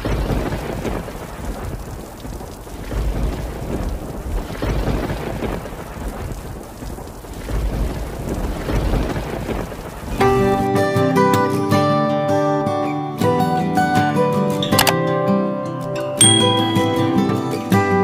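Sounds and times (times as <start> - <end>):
rolling thunder: 0.0 - 10.7
rain hissing: 0.0 - 12.2.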